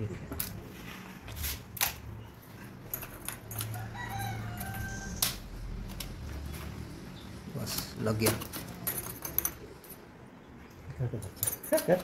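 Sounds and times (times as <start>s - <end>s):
rooster crowing: 3.6s - 5.4s.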